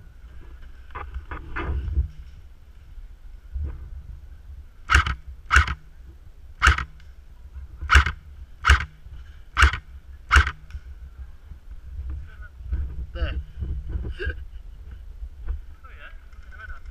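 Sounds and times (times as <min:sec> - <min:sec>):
airsoft rifle shots: 0:04.9 - 0:05.9, 0:06.6 - 0:07.0, 0:07.9 - 0:10.7.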